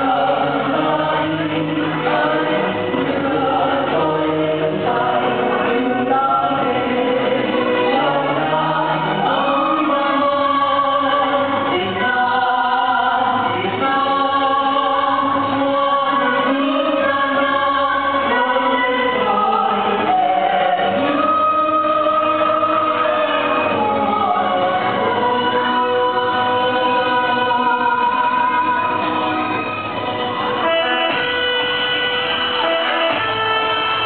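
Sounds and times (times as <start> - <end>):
backing music: 0.0 - 34.0
group of voices singing: 0.0 - 34.0.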